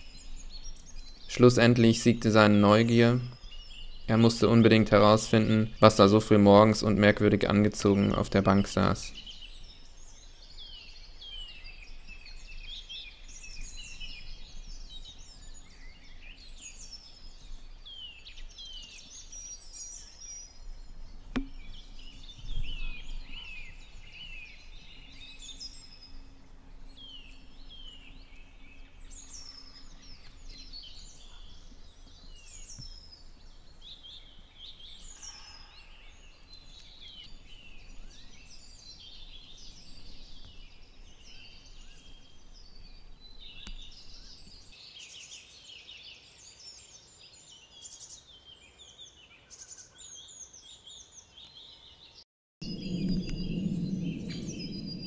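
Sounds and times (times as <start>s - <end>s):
songbirds whistling: 8.1s - 45.4s, 52.6s - 55.0s
low thump: 21.3s - 21.8s, 52.6s - 55.0s.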